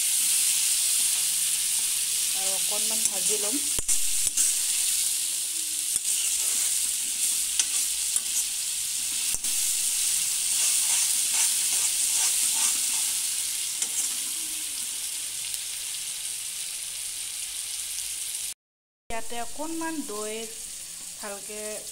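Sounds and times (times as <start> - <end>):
onions sizzling in oil: 0.0 - 21.9
spoon stirring and scraping pan: 0.1 - 5.2, 5.8 - 14.8.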